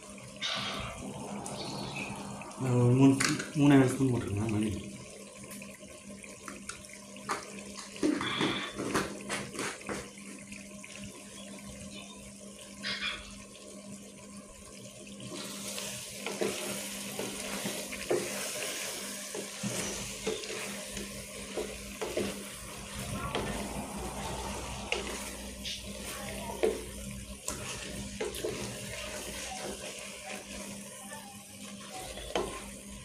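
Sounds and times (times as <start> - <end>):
food sizzling in a pot: 0.0 - 33.0
wet stirring: 15.3 - 33.0.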